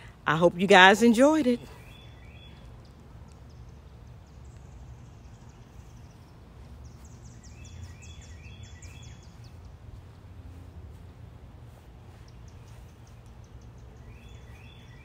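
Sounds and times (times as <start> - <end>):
low outdoor rumble: 0.0 - 15.0
small bird chirping: 1.8 - 10.1, 12.1 - 15.0.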